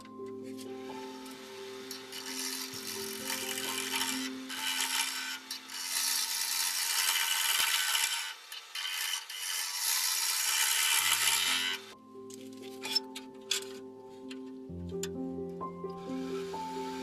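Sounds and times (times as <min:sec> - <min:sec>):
gouge scraping spinning wood: 0:02.0 - 0:12.0.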